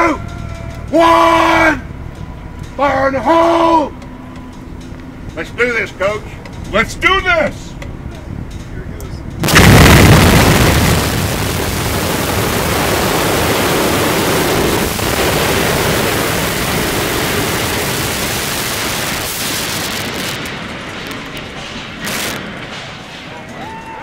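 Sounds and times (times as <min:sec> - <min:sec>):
demolition charges blast: 0:09.4 - 0:23.6
debris falling: 0:09.4 - 0:23.7
structure collapsing roar: 0:09.4 - 0:24.0.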